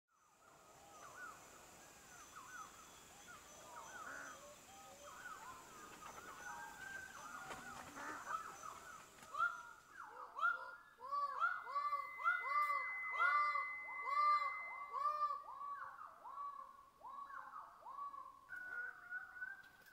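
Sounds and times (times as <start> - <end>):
chorus of bird calls: 0.2 - 19.9
bird calling repeated notes: 7.5 - 19.9
faint high-pitched tone: 11.4 - 17.3.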